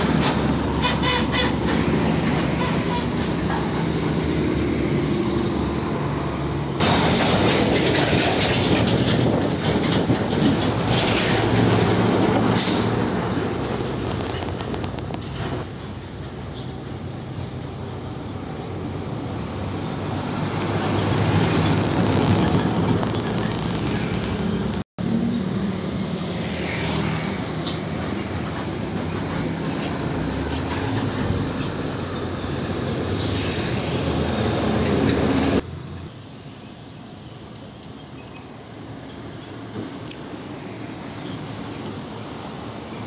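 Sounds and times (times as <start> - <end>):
diesel truck passing: 0.0 - 36.0
distant traffic rumble: 0.0 - 43.0.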